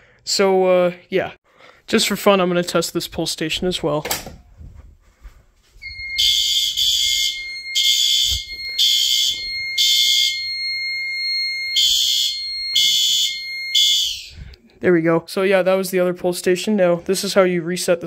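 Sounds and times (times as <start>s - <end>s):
fire alarm horn blasts: 5.8s - 14.4s.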